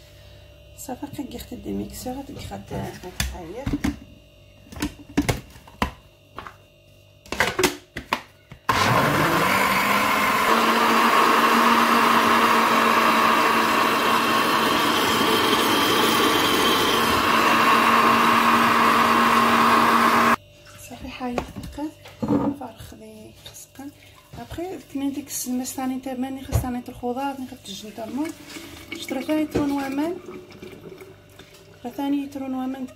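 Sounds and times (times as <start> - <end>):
blender motor running: 8.7 - 20.4.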